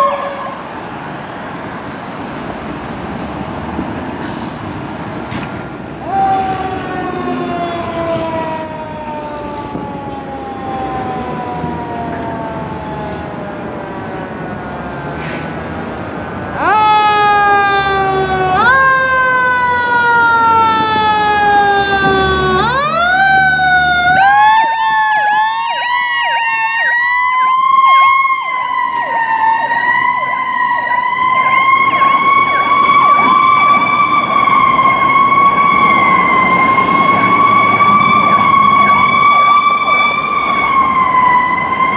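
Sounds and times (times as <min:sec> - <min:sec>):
fire engine siren wailing: 0:00.0 - 0:41.9.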